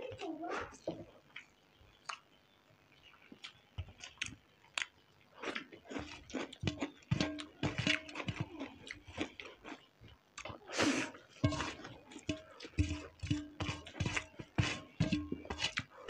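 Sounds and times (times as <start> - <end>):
people chewing noodles: 0.0 - 16.0.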